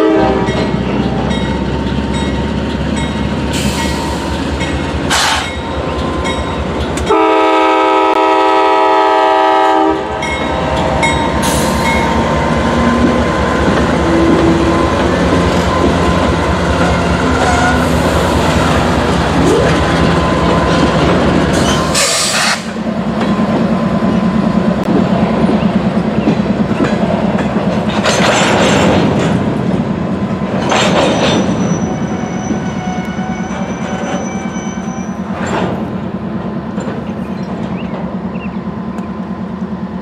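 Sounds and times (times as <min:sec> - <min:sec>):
locomotive horn: 0:00.0 - 0:01.3, 0:07.0 - 0:10.3, 0:16.8 - 0:18.7
diesel locomotives rumbling: 0:00.0 - 0:40.0.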